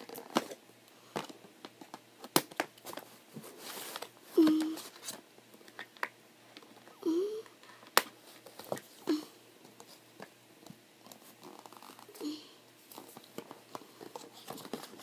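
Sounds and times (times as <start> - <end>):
child's breathy vocal sounds: 4.4 - 4.9, 7.0 - 7.5, 12.2 - 12.6.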